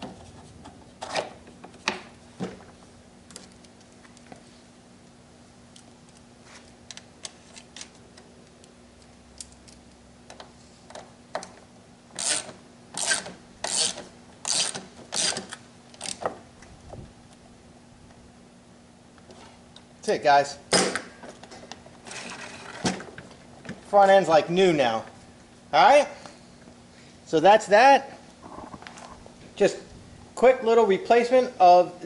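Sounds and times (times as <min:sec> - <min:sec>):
ratchet wrench ratcheting: 0:12.2 - 0:16.2.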